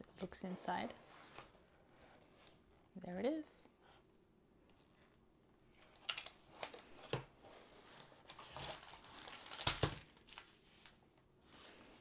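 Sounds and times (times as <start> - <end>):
packaging crinkling and rustling: 5.8 - 11.0.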